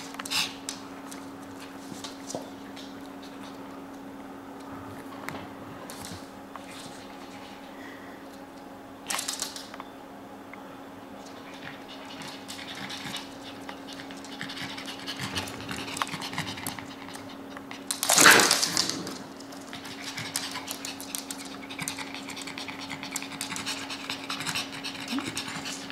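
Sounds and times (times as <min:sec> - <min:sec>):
dog claws clicking on wood floor: 0:09.1 - 0:09.8, 0:17.6 - 0:23.8
dogs panting: 0:11.3 - 0:18.0, 0:19.6 - 0:25.9.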